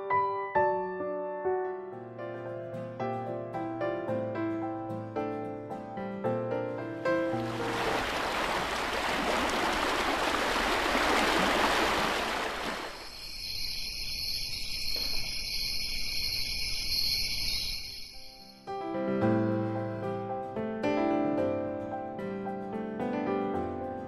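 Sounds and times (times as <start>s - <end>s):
rushing water: 7.2s - 13.2s
crickets chirring: 10.0s - 18.7s.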